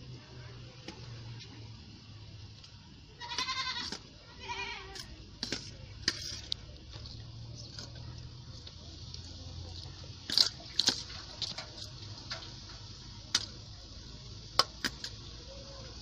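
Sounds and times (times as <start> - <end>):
faint low hum: 0.0 - 16.0
spoon scraping metal bowl: 4.9 - 7.8.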